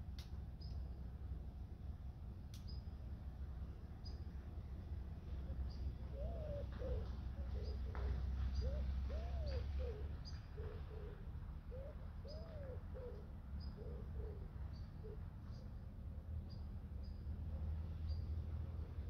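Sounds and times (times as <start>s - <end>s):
low steady rumble: 0.0s - 19.0s
small birds chirping: 0.5s - 1.0s, 2.6s - 3.0s, 3.9s - 19.0s
pigeon cooing: 5.4s - 15.6s.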